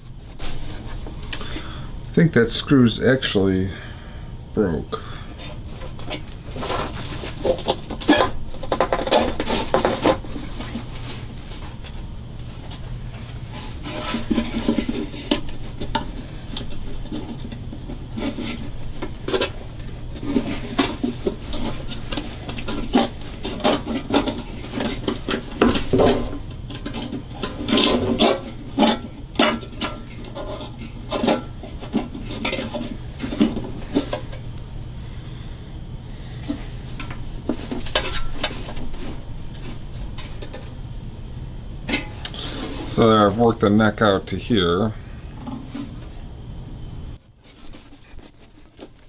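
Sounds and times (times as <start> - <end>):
wood scraping against metal: 5.4 - 11.7, 13.1 - 34.5, 36.3 - 40.8, 41.9 - 43.3, 47.4 - 49.0.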